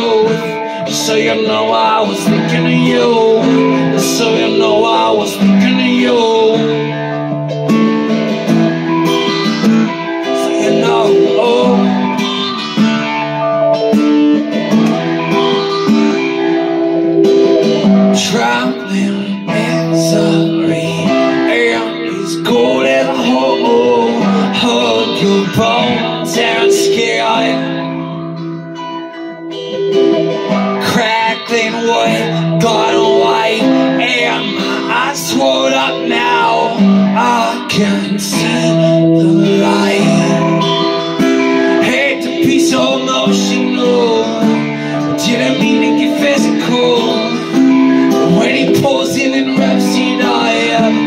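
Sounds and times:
man singing: 0.0s - 8.3s, 8.9s - 12.9s, 15.4s - 28.2s, 30.5s - 51.0s
acoustic guitar strumming: 0.0s - 51.0s.

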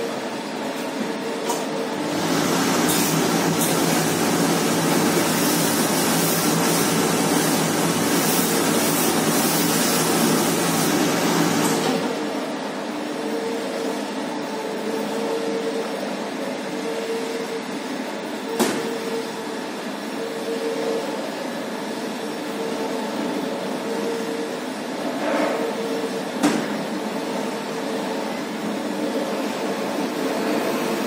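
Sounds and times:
ironing machine humming: 2.0s - 12.4s.

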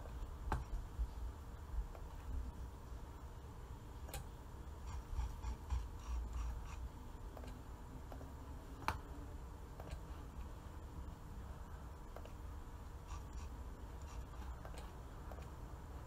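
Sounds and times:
low room rumble: 0.0s - 16.0s.

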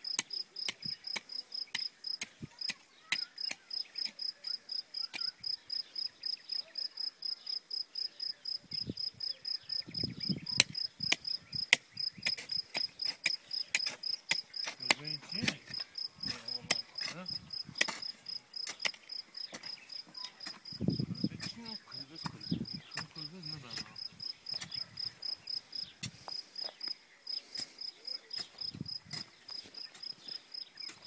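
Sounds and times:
crickets chirping: 15.7s - 20.0s, 20.6s - 28.0s.

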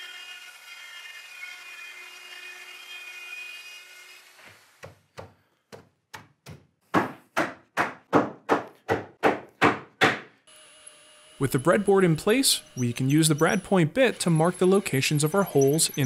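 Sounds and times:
router whining: 0.0s - 4.8s, 10.5s - 16.0s
hammer knocking on wood: 4.8s - 10.3s.

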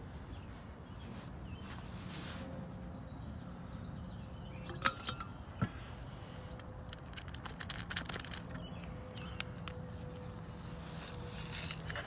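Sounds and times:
steel bottle clinking: 4.6s - 5.4s.

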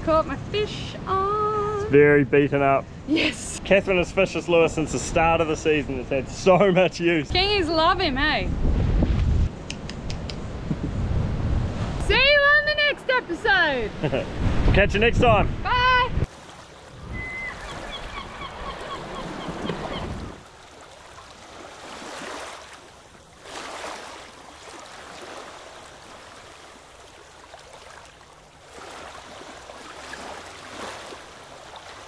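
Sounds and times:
surf washing over rocks: 13.9s - 32.0s
bird calling in quick notes: 17.0s - 20.4s.

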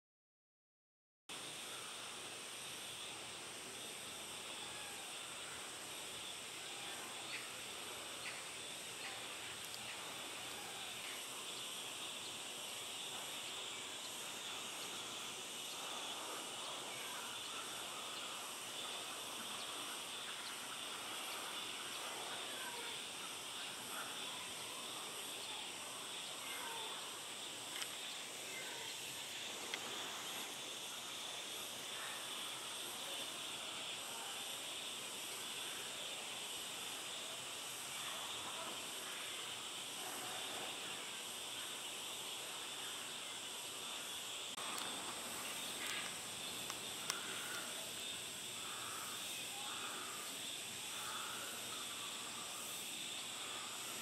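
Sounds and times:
faint chirps: 1.3s - 54.0s
small clicks: 27.7s - 28.0s.

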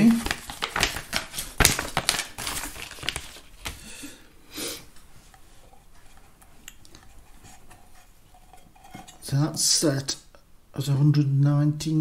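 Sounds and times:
paper rustling: 0.0s - 3.9s.

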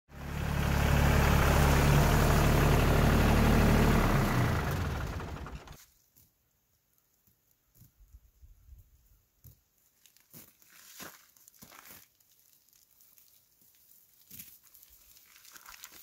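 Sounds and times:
diesel tractor engine idling: 0.1s - 5.8s
faint rustles and clicks: 5.7s - 16.0s.

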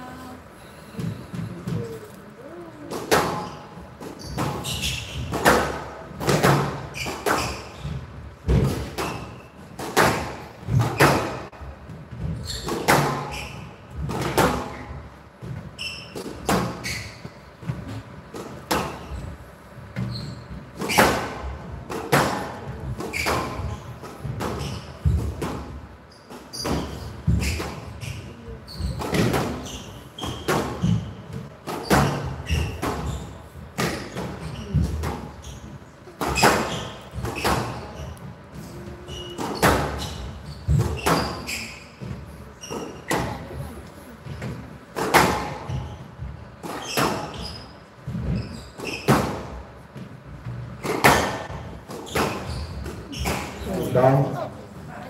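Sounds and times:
squash ball hitting rackets: 2.9s - 14.8s, 20.8s - 25.8s, 28.9s - 33.1s, 44.3s - 45.8s.

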